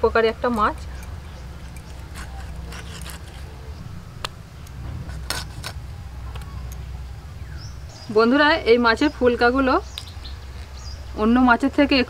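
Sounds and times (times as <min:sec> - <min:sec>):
low rumble: 0:00.0 - 0:11.3
blade clicks and scrapes: 0:00.5 - 0:06.8.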